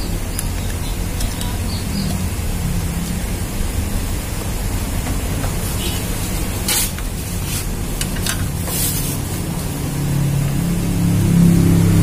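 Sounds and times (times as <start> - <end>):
steady low hum: 0.0 - 12.0
connectors rustling and clicking: 6.3 - 9.4.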